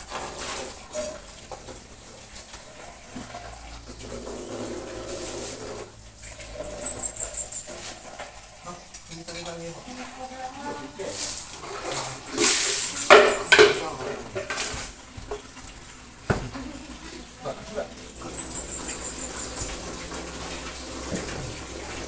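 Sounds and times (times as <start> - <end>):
short high squeaks: 6.2 - 8.1
water splashing on concrete: 7.5 - 22.0.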